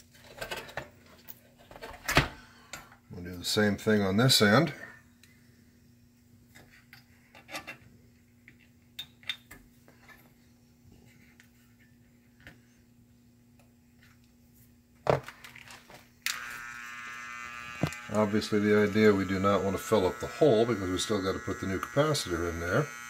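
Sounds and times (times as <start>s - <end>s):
faint steady hum: 0.1s - 23.0s.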